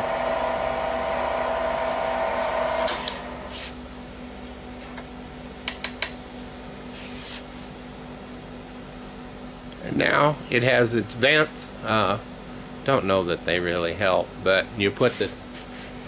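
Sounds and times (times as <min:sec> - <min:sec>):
spindle motor whine: 0:00.0 - 0:03.6.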